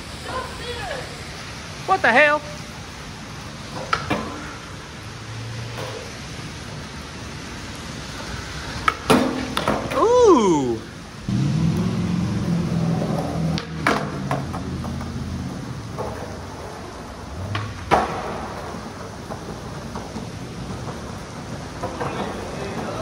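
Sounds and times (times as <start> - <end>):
skateboard wheels rolling on concrete: 0.0 - 23.0
skateboard clacking on ground: 3.7 - 4.8, 8.8 - 10.0, 12.9 - 23.0.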